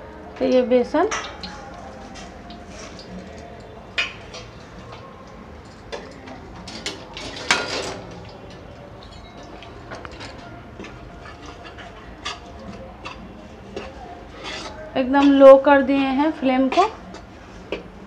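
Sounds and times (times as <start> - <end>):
spoon scraping pan: 10.8 - 17.8.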